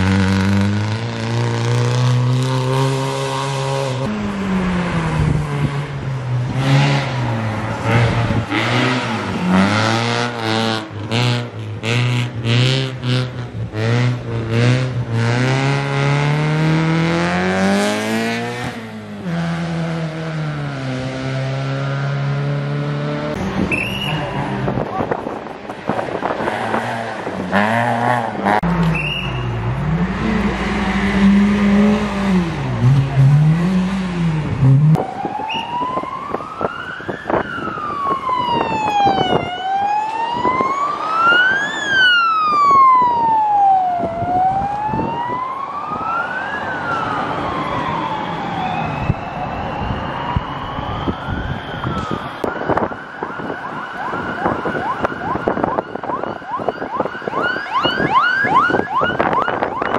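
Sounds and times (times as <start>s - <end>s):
rally car engine revving: 0.0s - 25.3s, 26.0s - 35.0s
siren wailing: 34.7s - 59.9s.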